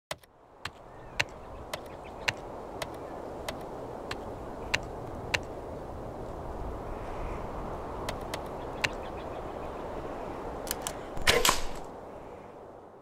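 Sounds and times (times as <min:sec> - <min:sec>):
sharp keystroke clicks: 0:00.1 - 0:05.5, 0:10.7 - 0:11.8.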